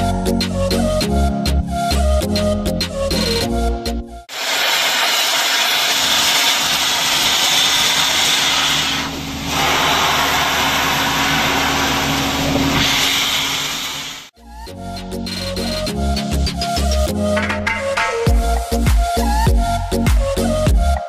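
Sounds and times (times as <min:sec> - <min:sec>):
steam hissing from locomotive: 0:04.3 - 0:14.3.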